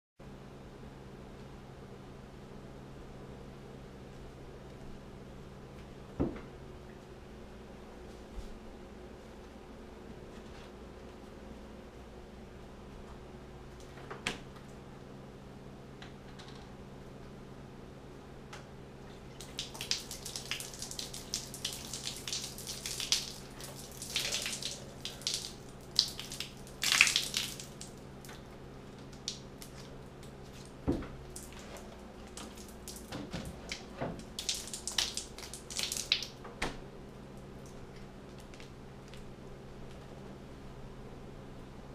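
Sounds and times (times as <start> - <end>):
milk splashing onto tile floor: 19.4 - 28.4, 30.5 - 36.4.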